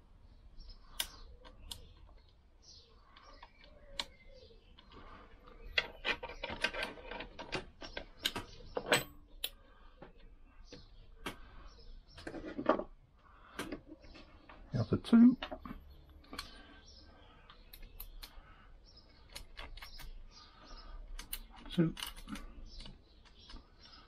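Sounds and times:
metallic clicks of nuts: 0:05.7 - 0:09.6, 0:19.2 - 0:20.3, 0:21.1 - 0:23.7.

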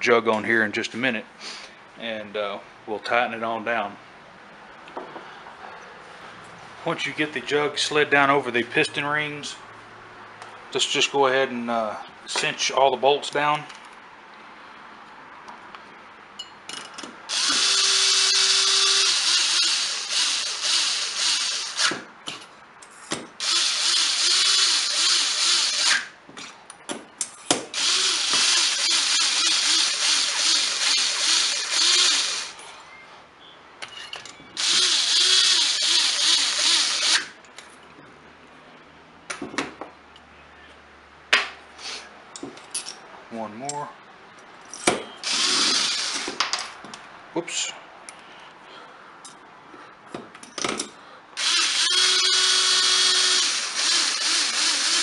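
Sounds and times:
power drill running: 0:17.3 - 0:21.9, 0:23.4 - 0:26.1, 0:27.8 - 0:32.6, 0:34.6 - 0:37.4, 0:45.2 - 0:46.3, 0:51.4 - 0:55.0.

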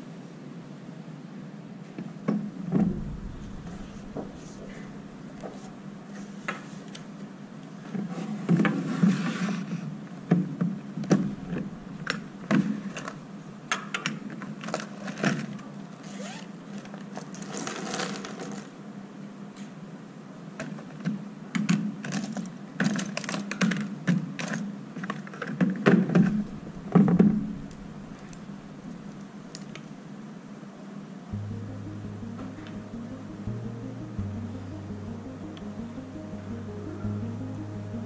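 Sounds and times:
steady low hum: 0:02.6 - 0:06.4, 0:11.1 - 0:13.6, 0:26.2 - 0:29.5, 0:31.3 - 0:38.0.

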